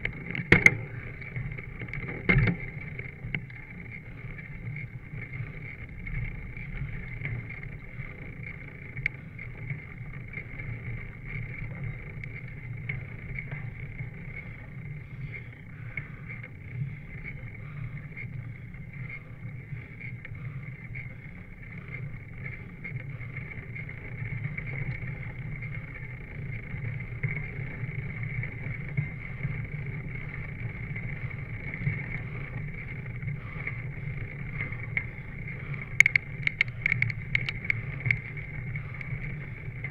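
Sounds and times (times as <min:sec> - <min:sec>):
bicycle rolling on asphalt: 0:00.0 - 0:39.9
small ticks and rattles: 0:00.0 - 0:39.9
wind noise: 0:23.1 - 0:39.9.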